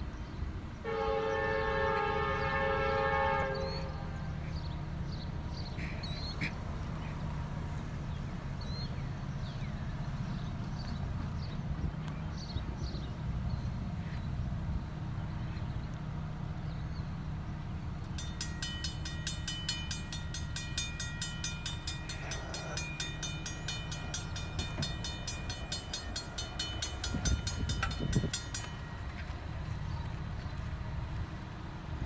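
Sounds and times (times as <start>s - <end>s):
steady low rumble: 3.9s - 32.0s
railroad crossing bell ringing: 18.0s - 31.4s.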